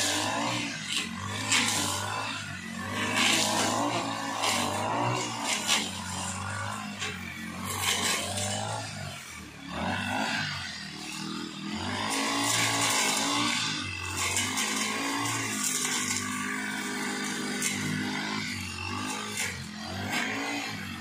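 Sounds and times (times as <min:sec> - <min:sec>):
brush cutter engine running: 0:00.0 - 0:21.0
grass being cut hissing: 0:00.0 - 0:21.0.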